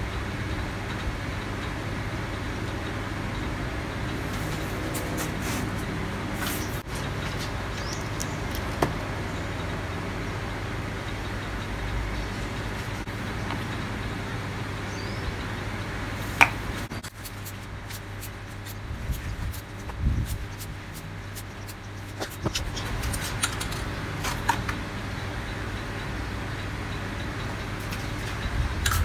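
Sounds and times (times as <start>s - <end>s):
low background rumble: 16.0s - 24.0s.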